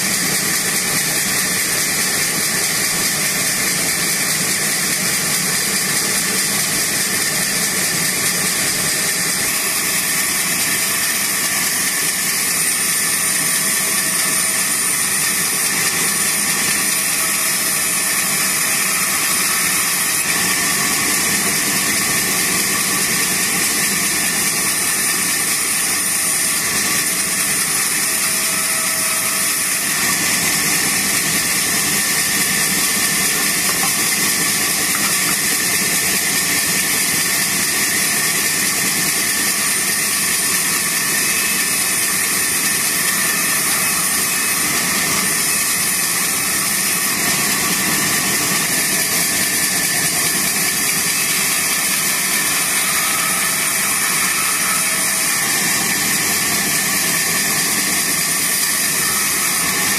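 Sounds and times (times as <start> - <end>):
band saw cutting wood: 0.0 - 59.9
high whine: 25.6 - 37.6.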